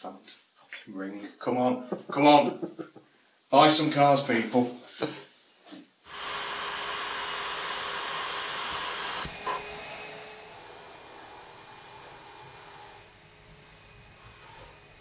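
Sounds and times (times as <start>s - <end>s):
loud rushing hiss: 6.1s - 15.0s.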